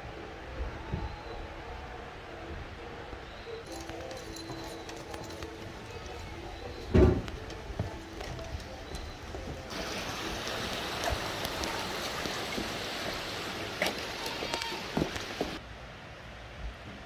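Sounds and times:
steady rushing hiss: 1.5 - 17.0
footsteps on wooden steps: 3.7 - 15.6
loud thump: 6.9 - 7.3.

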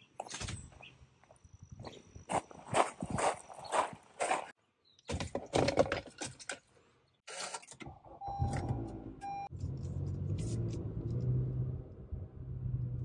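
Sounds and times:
handling scuffs: 2.3 - 4.5.

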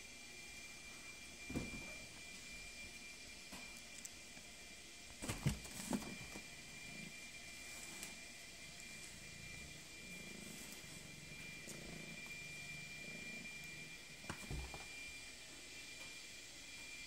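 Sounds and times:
cat purring: 5.6 - 15.2.

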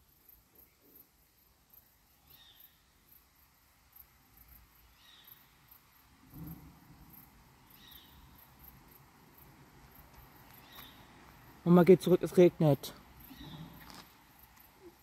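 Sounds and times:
faint insects chirping: 0.0 - 15.0
low thump: 6.2 - 7.0.

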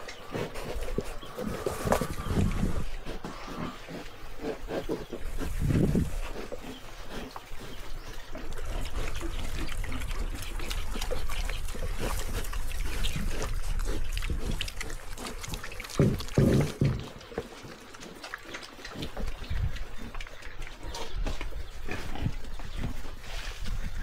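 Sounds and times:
pigs snuffling in bedding: 0.0 - 19.6, 20.9 - 24.0
pig grunts: 8.4 - 17.2.

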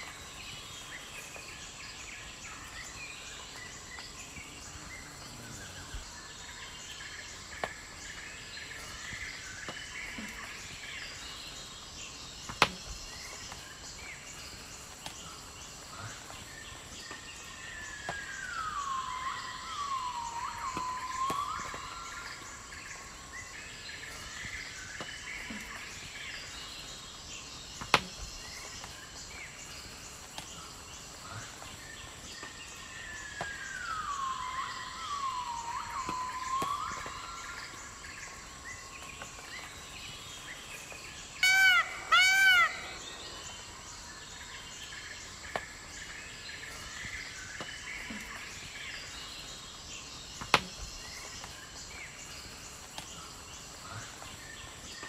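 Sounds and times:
steady background hiss: 0.0 - 55.0
bird song sliding down in pitch: 17.9 - 23.1, 33.2 - 39.7
loud short bird calls: 41.4 - 43.7.

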